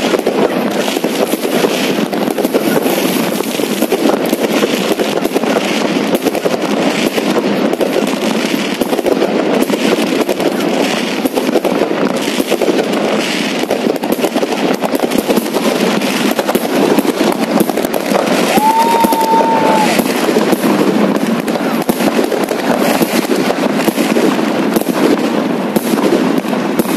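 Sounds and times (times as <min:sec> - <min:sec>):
fireworks crackling and popping: 0:00.0 - 0:26.9
firework whistle: 0:17.8 - 0:22.0.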